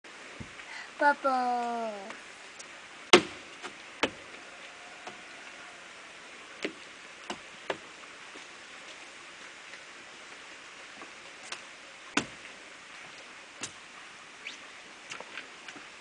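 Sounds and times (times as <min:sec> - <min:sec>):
faint steady hiss: 0:00.1 - 0:16.0.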